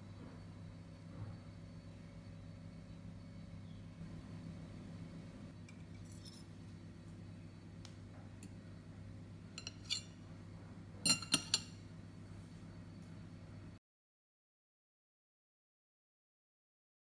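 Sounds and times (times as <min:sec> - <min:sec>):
low steady hum: 0:00.0 - 0:13.8
fork clinking on ceramic plate: 0:09.6 - 0:10.2, 0:11.0 - 0:11.8.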